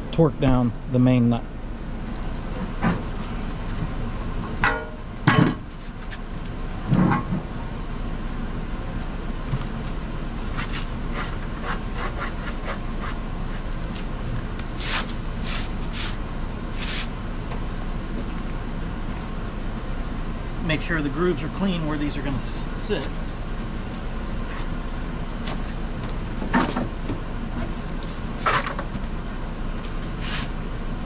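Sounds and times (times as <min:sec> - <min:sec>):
steady low hum: 0:00.0 - 0:31.0
heavy steel clunks: 0:04.6 - 0:05.7.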